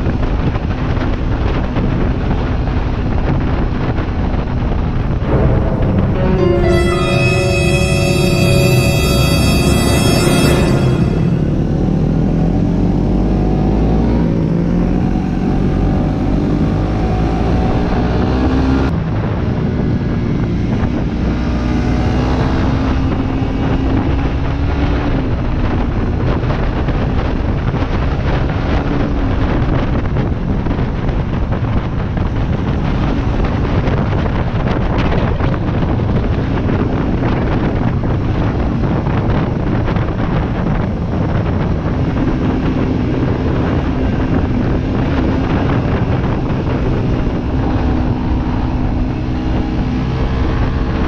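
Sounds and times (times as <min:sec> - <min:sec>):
wind rush on microphone: 0:28.7 - 0:51.0.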